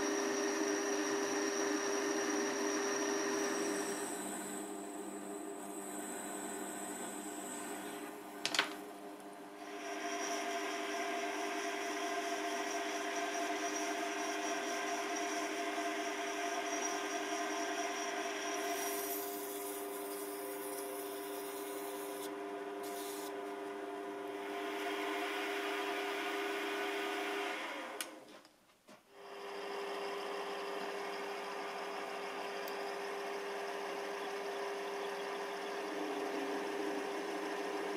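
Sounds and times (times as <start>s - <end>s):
metal lathe humming: 0.0s - 8.4s, 9.6s - 23.4s, 29.5s - 37.9s.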